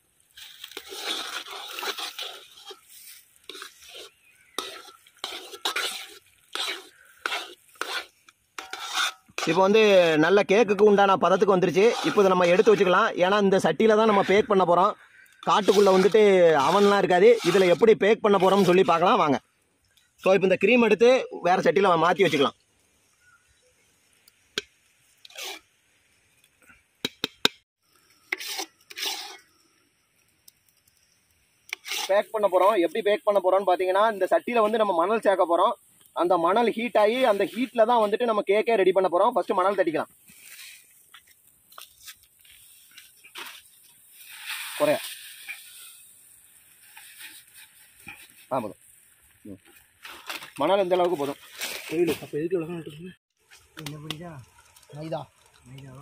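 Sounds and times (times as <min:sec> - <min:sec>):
thick batter stirred in a pot: 0:00.2 - 0:19.2, 0:24.5 - 0:25.8, 0:28.2 - 0:29.6, 0:31.7 - 0:33.5
spoon scraping batter from bowl: 0:00.7 - 0:09.8.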